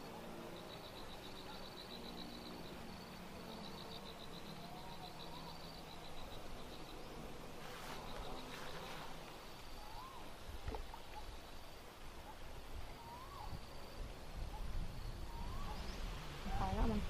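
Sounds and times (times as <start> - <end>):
bird calls: 0.0 - 11.6, 12.2 - 13.8, 14.4 - 17.0
insect trilling: 0.0 - 11.8, 12.9 - 17.0
soft rustle: 7.5 - 11.3.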